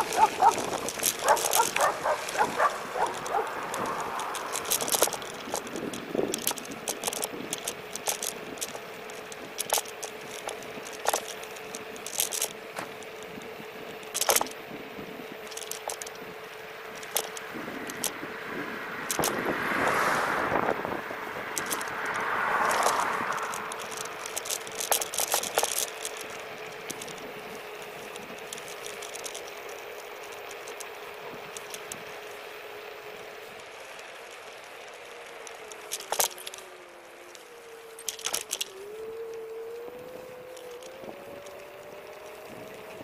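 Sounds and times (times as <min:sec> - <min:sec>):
rushes of noise: 0:00.0 - 0:09.5, 0:18.5 - 0:25.4
frame rattling clicks: 0:00.0 - 0:13.3, 0:14.0 - 0:14.6, 0:15.4 - 0:16.2, 0:17.0 - 0:18.2, 0:21.6 - 0:27.2, 0:27.8 - 0:32.0, 0:33.6 - 0:43.0
electric scooter motor whine: 0:00.0 - 0:43.0
tyre and wind noise: 0:00.0 - 0:43.0.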